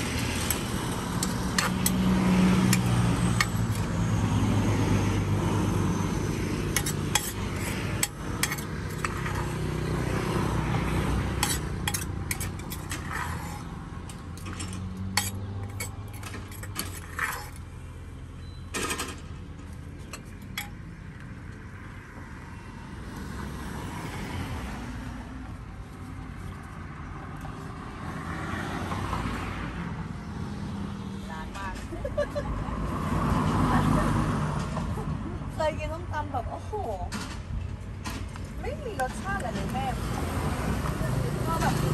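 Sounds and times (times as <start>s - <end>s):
street traffic hum: 0.0s - 41.9s
utensils clinking against dishes: 6.8s - 9.6s, 11.4s - 13.6s, 14.4s - 17.6s.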